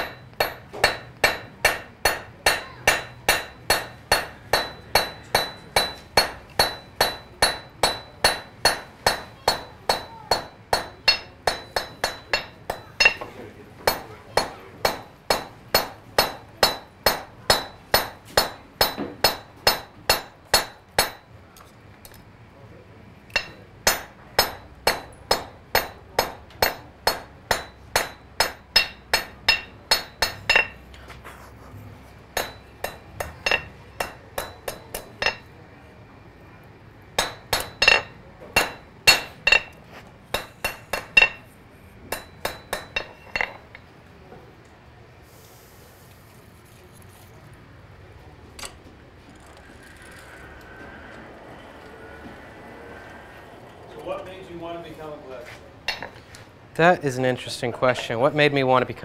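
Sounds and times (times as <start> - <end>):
hammer striking iron on anvil: 0.0 - 21.3, 23.3 - 30.9, 32.3 - 35.5, 37.2 - 43.8, 55.9 - 56.2.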